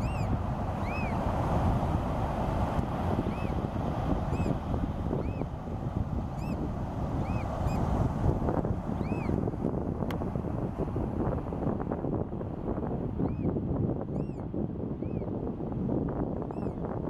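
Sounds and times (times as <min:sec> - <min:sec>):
bird peeping calls: 0:00.0 - 0:01.2
wind rumble on microphone: 0:00.0 - 0:17.0.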